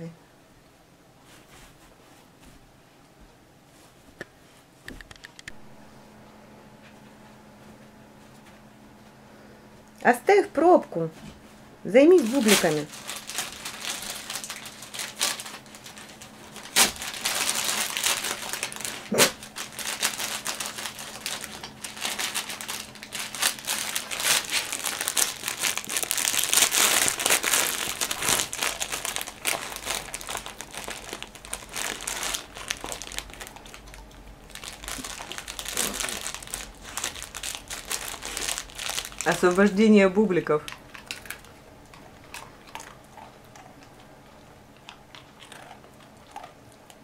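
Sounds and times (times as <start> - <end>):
plastic bag crinkling: 11.9 - 46.7.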